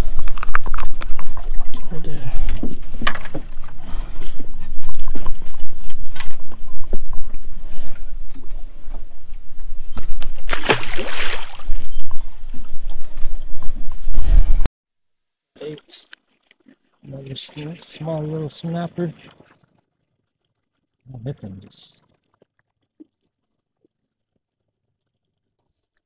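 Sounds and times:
water sloshing around boat: 0.8 - 9.1, 10.5 - 12.2, 15.6 - 24.0
fish splashing into water: 10.4 - 11.9.

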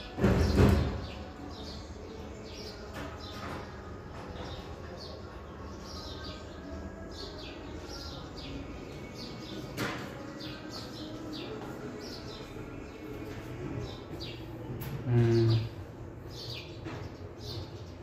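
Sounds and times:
small birds chirping: 0.0 - 18.0.

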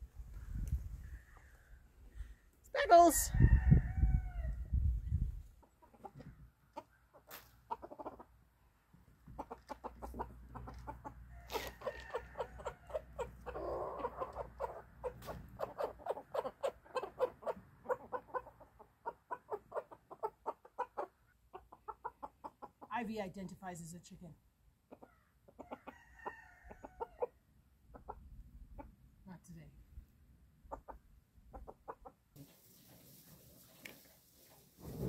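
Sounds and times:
chickens clucking: 5.1 - 23.0, 24.8 - 29.0, 30.6 - 35.0.

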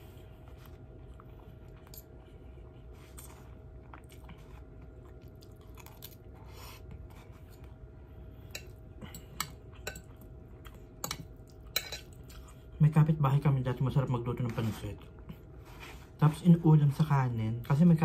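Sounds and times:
quiet chewing: 0.0 - 12.8
faint steady hum: 0.0 - 18.0
cutlery clinking against glass: 11.0 - 12.2.

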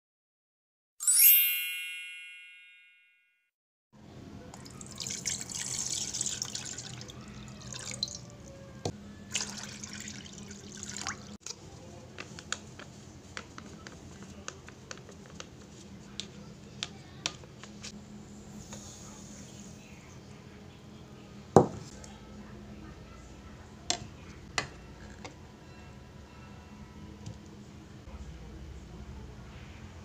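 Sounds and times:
water pouring into a saucepan: 4.6 - 8.4, 9.3 - 11.4.

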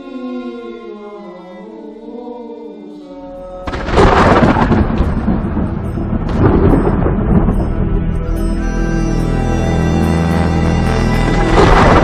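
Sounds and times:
choral singing: 0.0 - 4.8
thunderclap rumbling: 3.7 - 8.2, 11.4 - 12.0.

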